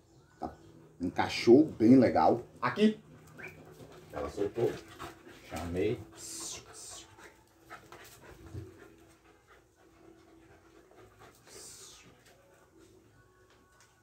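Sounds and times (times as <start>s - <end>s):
dog panting: 3.0s - 13.1s.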